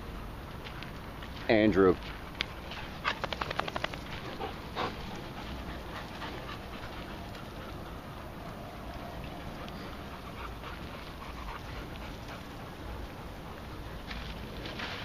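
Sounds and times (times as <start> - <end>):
dogs panting: 2.0 - 15.0.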